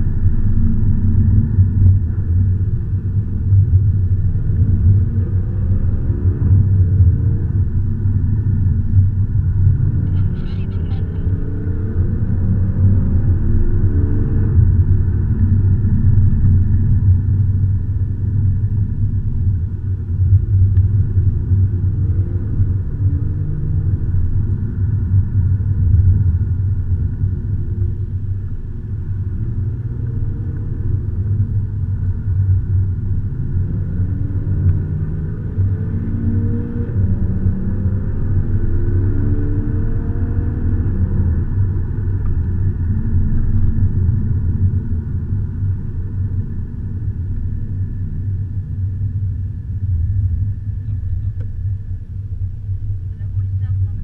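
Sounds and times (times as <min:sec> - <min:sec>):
car engine accelerating: 0:00.0 - 0:52.1
road rumble inside car: 0:00.0 - 0:54.0.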